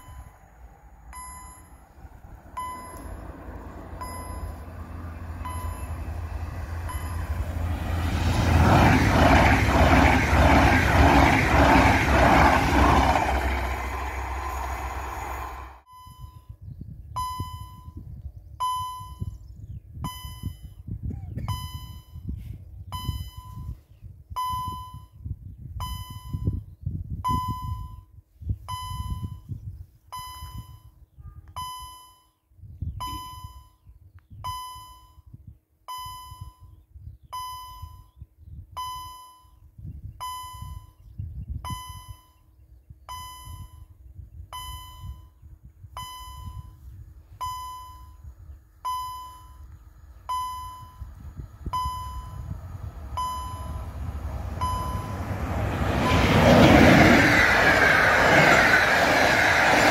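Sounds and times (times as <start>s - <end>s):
level crossing warning bell: 0.0s - 0.4s, 1.1s - 7.6s, 51.7s - 52.5s, 53.1s - 55.3s
low gusty rumble: 0.0s - 31.6s, 39.6s - 59.9s.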